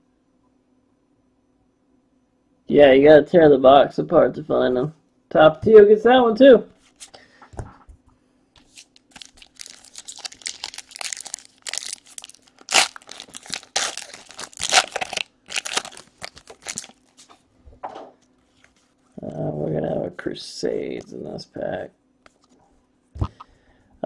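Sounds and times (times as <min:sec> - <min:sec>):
card pack tearing and crinkling: 0:08.6 - 0:17.3.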